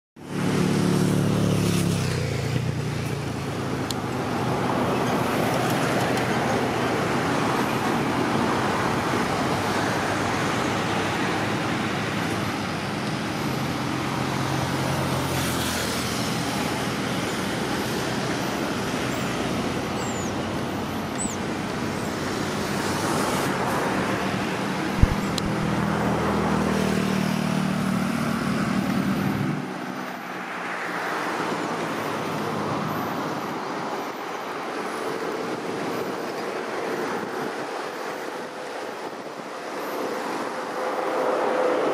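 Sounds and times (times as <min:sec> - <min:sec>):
vehicle engine humming: 0:00.2 - 0:33.4
road traffic noise: 0:00.2 - 0:41.9
sharp click: 0:25.0 - 0:25.6.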